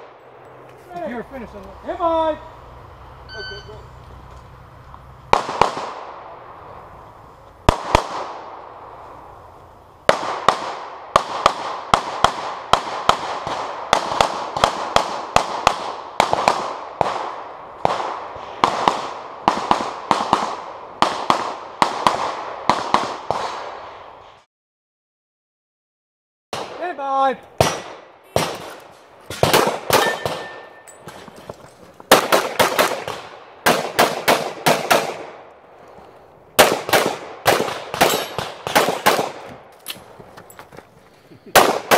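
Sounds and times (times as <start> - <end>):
pistol shots echoing: 5.3 - 6.4, 7.7 - 8.9, 10.1 - 23.8, 27.6 - 30.9, 32.1 - 35.5, 36.6 - 39.7, 41.5 - 41.9.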